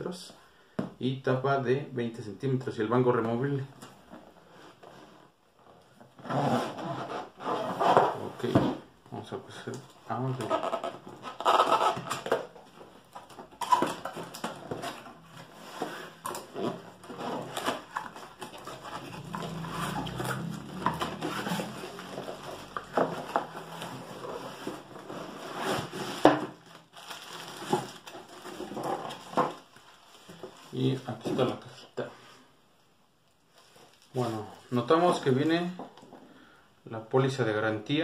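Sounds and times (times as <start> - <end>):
cardboard flaps rustling and scraping: 6.0 - 8.9, 10.2 - 31.6
plastic wrap crinkling: 9.2 - 31.7, 33.3 - 35.8.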